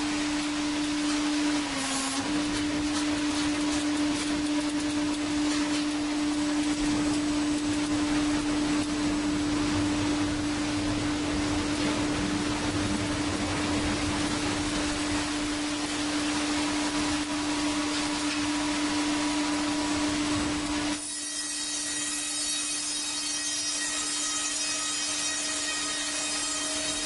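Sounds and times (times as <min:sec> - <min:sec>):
band saw cutting log: 0:00.0 - 0:09.0, 0:20.8 - 0:27.0
low hum: 0:00.0 - 0:20.8.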